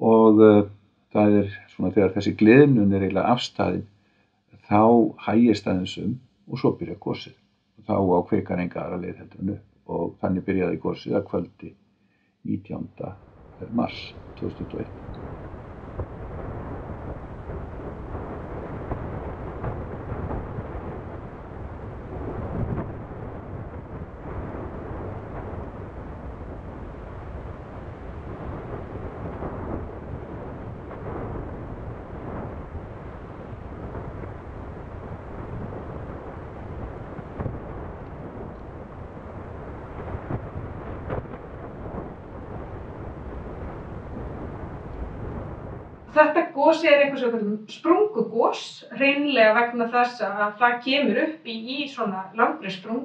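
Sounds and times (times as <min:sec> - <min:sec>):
deep rumble of erupting vent: 0:12.5 - 0:47.2.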